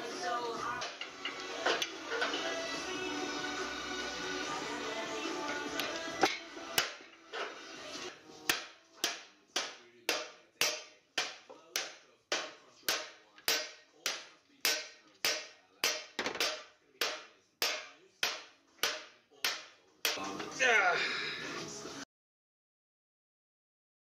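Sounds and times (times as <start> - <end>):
hammer beating sheet metal: 5.8 - 7.1, 8.4 - 20.3.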